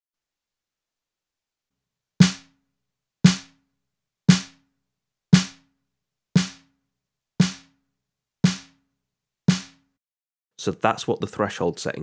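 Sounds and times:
snare drum hits: 0:02.2 - 0:02.5, 0:03.3 - 0:03.5, 0:04.3 - 0:04.6, 0:05.4 - 0:05.6, 0:06.4 - 0:06.7, 0:07.4 - 0:07.7, 0:08.4 - 0:08.8, 0:09.5 - 0:09.8.

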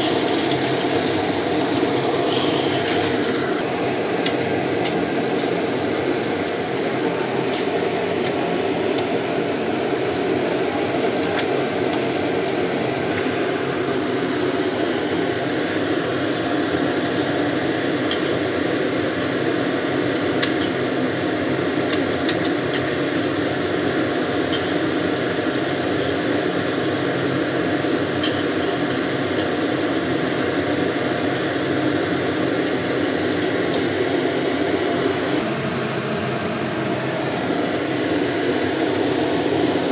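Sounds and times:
fish frying in oil: 0:00.0 - 0:03.6, 0:09.8 - 0:35.2.

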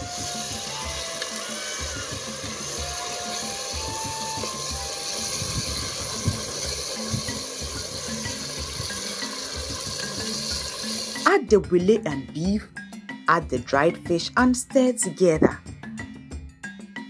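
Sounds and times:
stew boiling: 0:00.0 - 0:11.6.

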